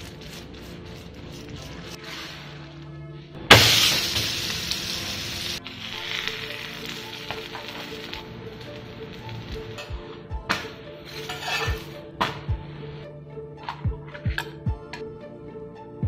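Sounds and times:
electronic background music: 0.0s - 16.0s
batter sizzling on hot griddle: 3.5s - 9.6s.

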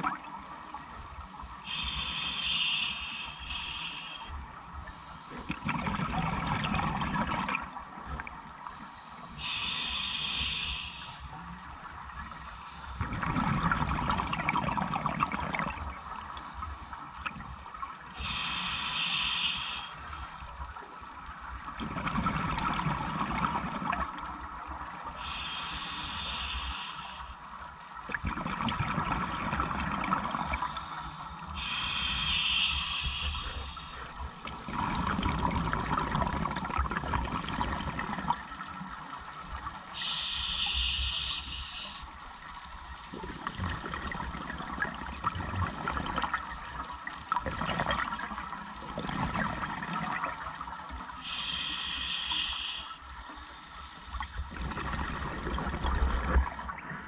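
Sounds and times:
regulator hissing inhalations: 1.6s - 5.4s, 9.3s - 11.4s, 18.2s - 20.5s, 25.2s - 27.5s, 30.4s - 34.2s, 39.9s - 42.2s, 51.2s - 54.5s.

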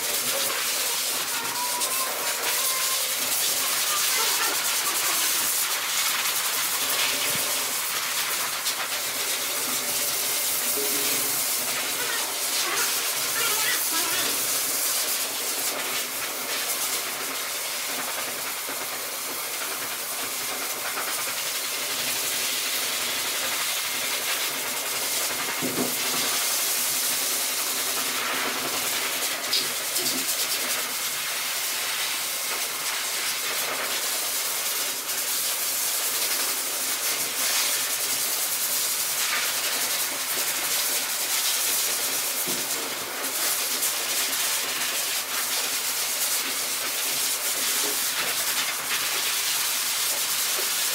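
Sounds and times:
electric dog clipper buzzing: 0.2s - 5.7s, 10.6s - 14.7s.

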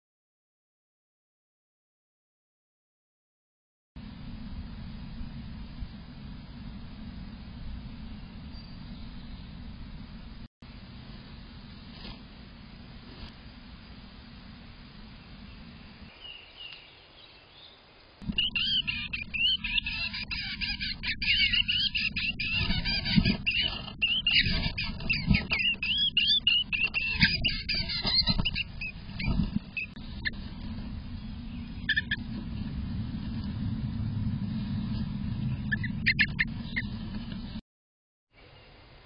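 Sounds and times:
low rumble: 4.0s - 16.2s, 18.2s - 37.6s
songbird warbling: 15.5s - 30.4s, 31.2s - 32.3s, 35.6s - 36.9s
bird scratching in nest: 22.2s - 29.9s.

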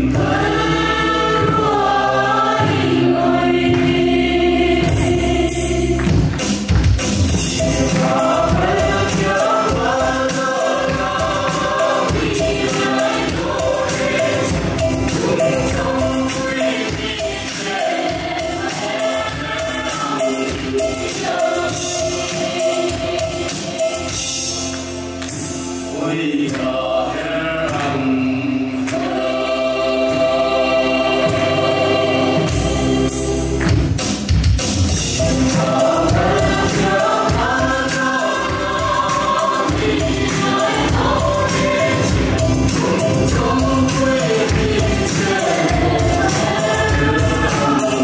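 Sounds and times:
group singing folk song: 0.0s - 34.2s, 34.9s - 48.0s
drum beat: 1.3s - 24.2s, 33.6s - 48.0s
hand claps: 3.7s - 4.1s, 6.0s - 9.3s, 24.6s - 25.6s, 26.5s - 26.7s, 28.8s - 29.2s, 41.5s - 46.5s.

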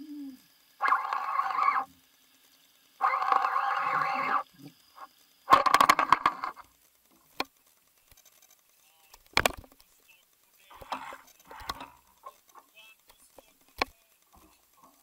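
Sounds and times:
fishing reel whirring: 0.7s - 6.6s
fishing reel clicks: 0.8s - 1.9s, 3.0s - 6.6s.

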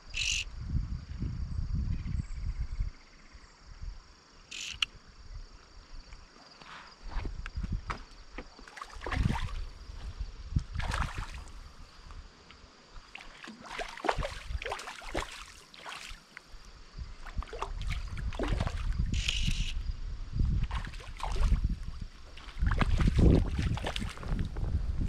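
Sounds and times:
wind rumble on microphone: 0.0s - 4.1s, 7.0s - 8.4s, 9.0s - 12.4s, 14.0s - 15.2s, 16.5s - 25.0s
water sloshing and splashing: 7.1s - 11.8s, 13.0s - 19.3s, 20.5s - 24.7s.

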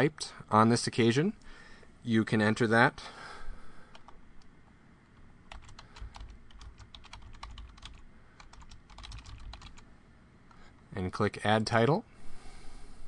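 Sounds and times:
typing on computer keyboard: 5.5s - 9.8s.

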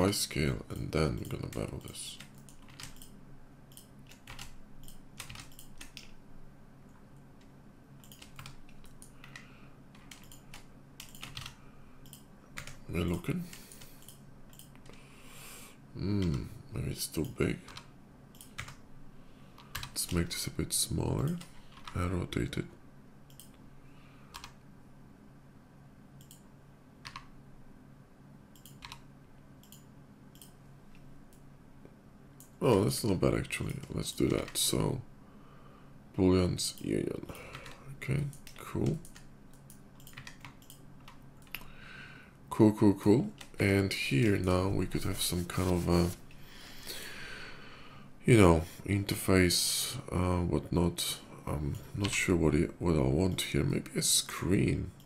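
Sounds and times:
faint low hum: 0.0s - 55.0s
keyboard keys clicking: 1.2s - 3.1s, 3.7s - 6.2s, 6.9s - 9.4s, 10.0s - 12.8s, 37.4s - 41.6s.

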